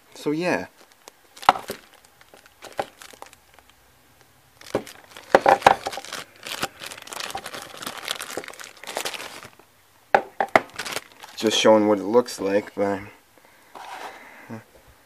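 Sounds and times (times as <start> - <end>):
plastic packaging crinkling: 0.5 - 11.7.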